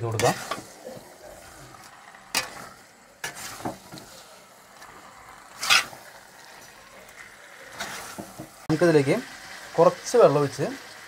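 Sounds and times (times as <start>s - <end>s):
metal spoon scraping a pan: 0.0s - 8.6s
low frying sizzle: 0.0s - 11.0s.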